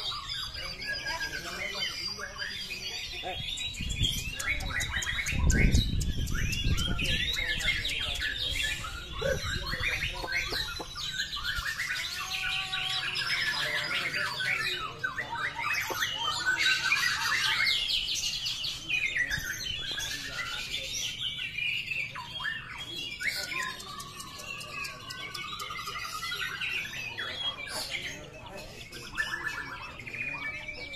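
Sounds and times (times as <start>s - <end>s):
birds singing whistled phrases: 0.0s - 30.9s.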